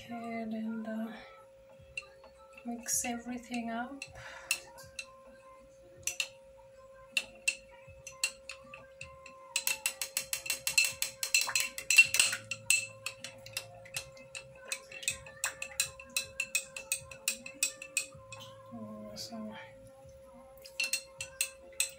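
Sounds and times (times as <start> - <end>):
spoon clinking against glass: 6.0 - 6.4, 7.2 - 18.6, 20.6 - 21.9.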